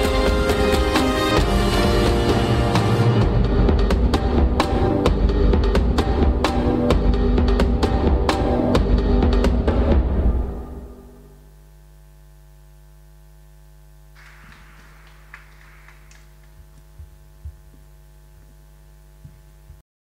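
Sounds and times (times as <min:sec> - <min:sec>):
dance music: 0:00.0 - 0:10.5
electrical mains hum: 0:10.4 - 0:19.8.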